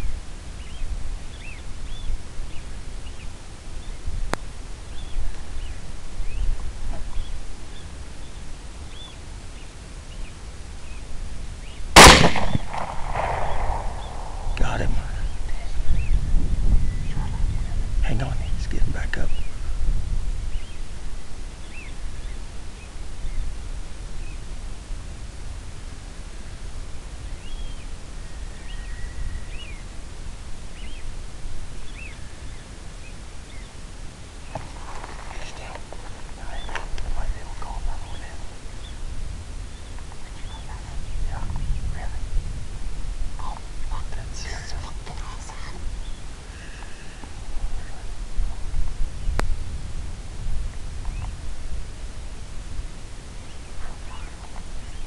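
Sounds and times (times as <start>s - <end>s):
steady low rumble: 0.0s - 55.0s
rifle shot with echo: 12.0s - 14.8s.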